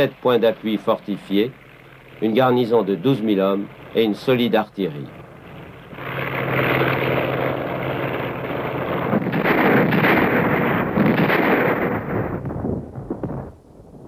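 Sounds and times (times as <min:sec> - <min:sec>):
engine drone: 0:00.0 - 0:14.0
artillery and gunfire: 0:08.4 - 0:13.6.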